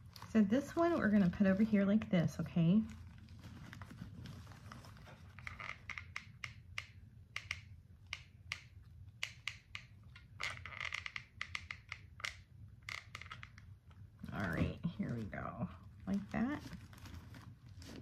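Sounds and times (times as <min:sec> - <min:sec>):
paper rustling: 0:00.0 - 0:05.6, 0:16.1 - 0:18.0
low steady hum: 0:00.0 - 0:18.0.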